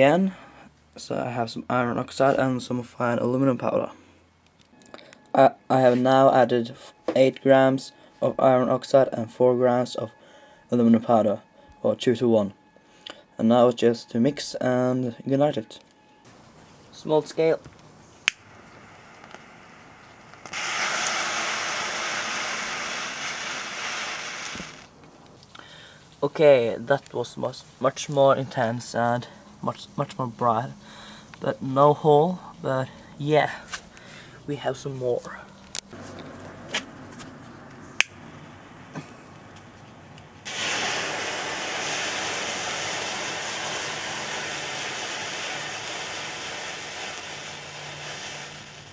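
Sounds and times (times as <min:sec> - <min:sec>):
thermite igniting with loud hiss: 0:17.4 - 0:25.0, 0:40.4 - 0:48.9.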